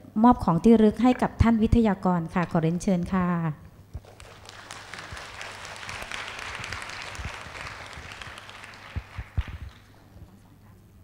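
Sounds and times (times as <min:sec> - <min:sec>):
audience applauding: 0:04.0 - 0:10.2.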